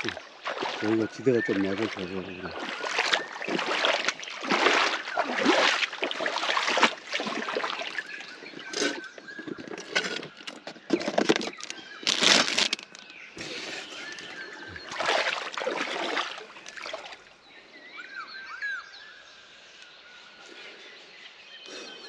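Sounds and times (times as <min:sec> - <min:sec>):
floodwater splashing and sloshing: 0:00.0 - 0:17.4.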